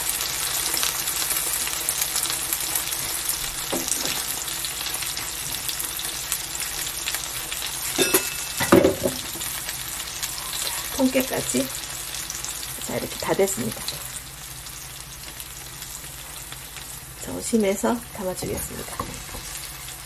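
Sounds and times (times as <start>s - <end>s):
mushrooms sizzling in frying pan: 0.0s - 20.0s.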